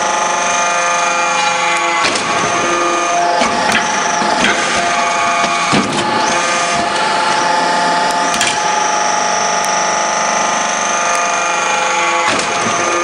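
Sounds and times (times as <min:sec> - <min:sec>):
press machine whine and rush: 0:00.0 - 0:13.0.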